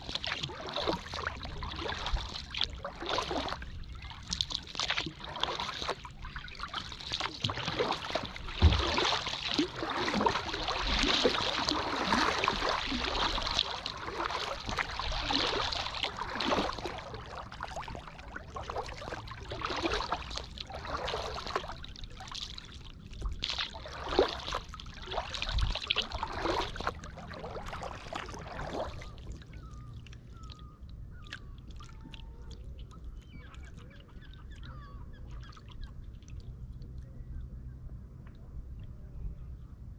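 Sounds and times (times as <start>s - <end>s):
kayak paddle splashing water: 0.0s - 34.5s
low water noise: 0.0s - 39.9s
faint bird calls: 28.9s - 36.2s.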